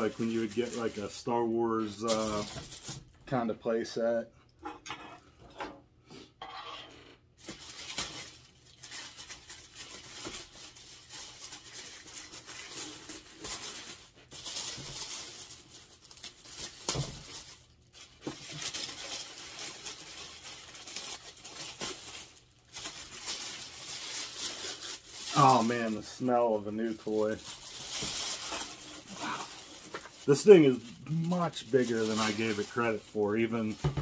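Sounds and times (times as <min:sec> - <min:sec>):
plastic wrapping crinkling and tearing: 0:00.0 - 0:03.2, 0:07.4 - 0:34.0.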